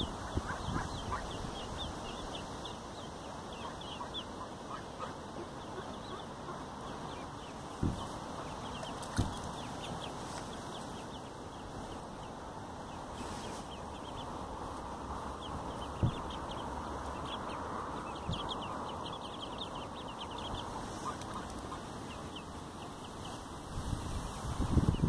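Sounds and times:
ducklings peeping: 0.0 - 25.0.

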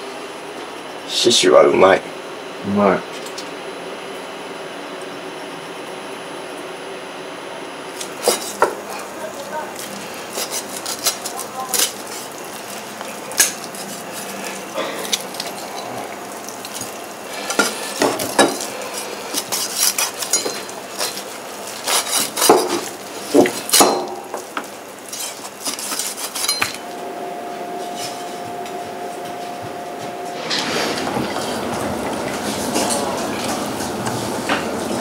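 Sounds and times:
steady hum: 0.0 - 35.0
metal kitchenware clinking: 19.4 - 21.3, 21.9 - 24.4, 25.1 - 26.8.

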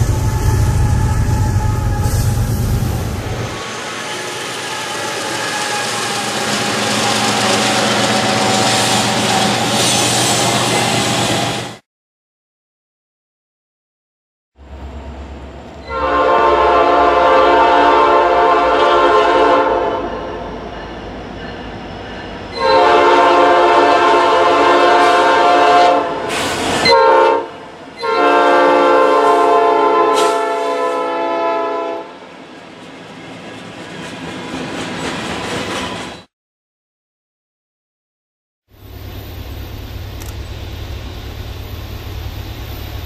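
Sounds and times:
locomotive air horn blasts: 0.0 - 2.6, 15.8 - 20.3, 22.6 - 32.1.

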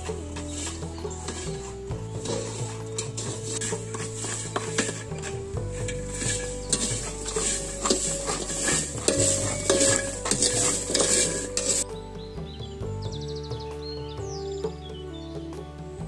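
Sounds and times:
seeds rattling in a pan: 0.0 - 11.9
wooden spoon scraping a pan: 0.0 - 11.9.

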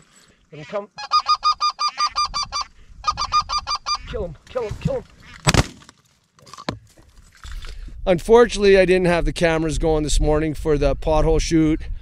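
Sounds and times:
goose calling with yelping notes: 0.6 - 4.4.

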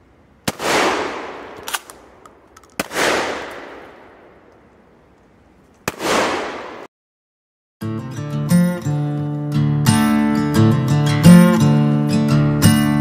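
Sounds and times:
shotgun shots with echo: 0.5 - 4.5, 5.8 - 6.9.

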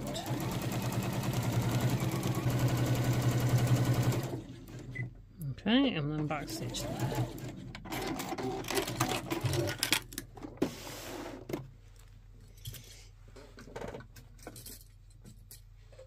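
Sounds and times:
sewing machine stitching: 0.0 - 5.1, 6.3 - 9.8.

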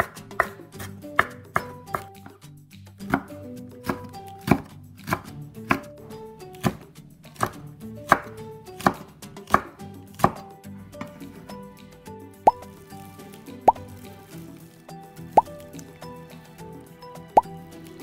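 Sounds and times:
knife chopping on wooden board: 0.0 - 2.4, 3.0 - 11.2.

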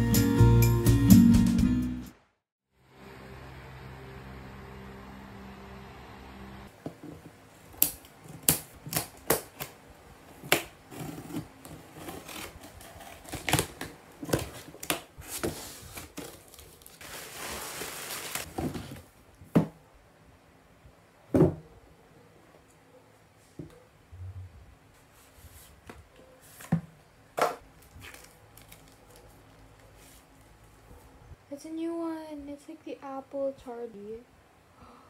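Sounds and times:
packing tape rasp: 10.4 - 18.5.

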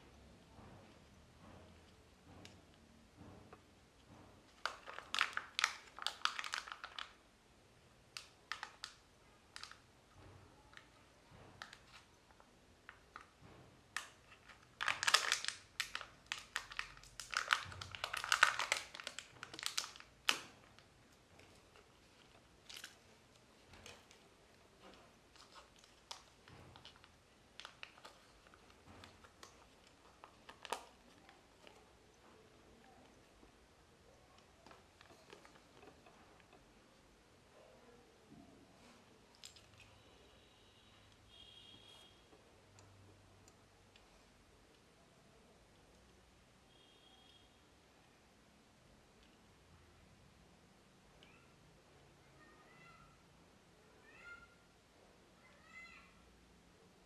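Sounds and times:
paper crinkling and rustling: 4.5 - 7.2, 11.6 - 33.2.

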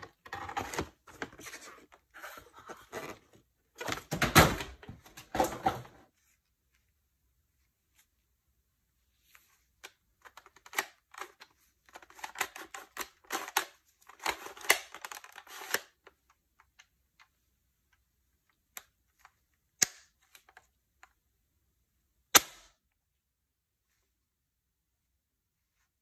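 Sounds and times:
plastic toy rustling and clicking: 9.4 - 21.2.

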